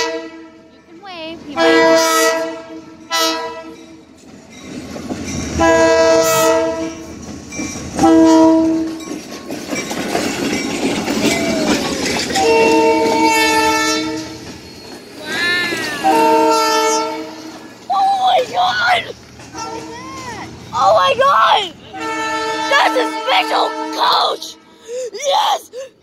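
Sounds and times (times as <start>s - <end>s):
locomotive air horn blasts: 0.0s - 0.8s, 1.6s - 3.8s, 5.6s - 7.1s, 8.0s - 9.0s, 12.4s - 14.5s, 16.0s - 17.7s, 19.6s - 19.9s, 21.8s - 24.8s
train wheels clattering on rails: 1.6s - 23.3s.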